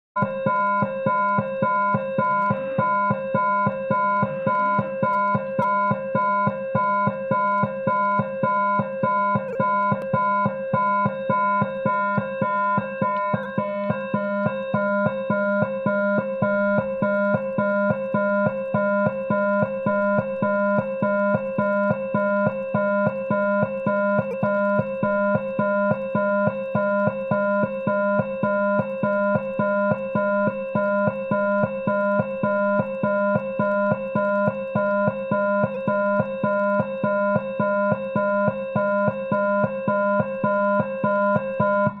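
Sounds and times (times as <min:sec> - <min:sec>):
pulsing electronic alarm tone: 0:00.2 - 0:42.0.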